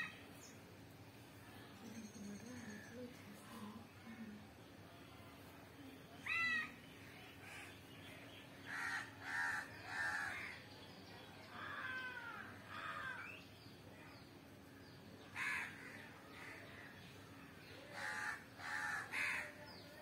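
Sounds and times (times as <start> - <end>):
crow cawing: 8.7 - 10.5, 11.6 - 13.4, 15.4 - 16.6, 17.9 - 19.6.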